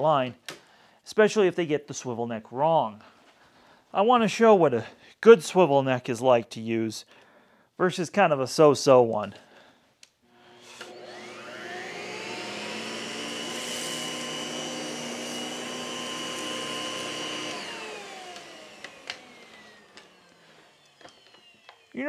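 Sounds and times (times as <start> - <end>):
vacuum cleaner motor running: 10.3 - 22.0.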